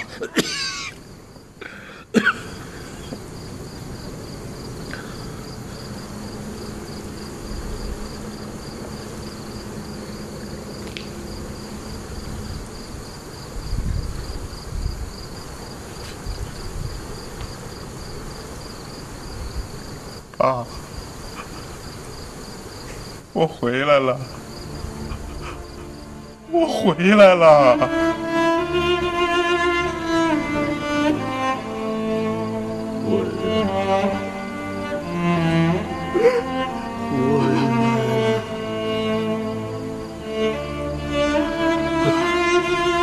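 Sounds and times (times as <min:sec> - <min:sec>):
crickets chirping: 0:00.0 - 0:43.0
man's voice: 0:33.0 - 0:33.6, 0:37.1 - 0:38.2
man sobbing: 0:36.1 - 0:38.3.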